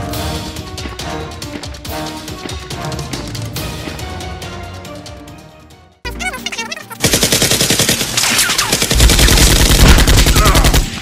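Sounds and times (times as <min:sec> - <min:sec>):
machine-gun fire: 0:07.0 - 0:11.0.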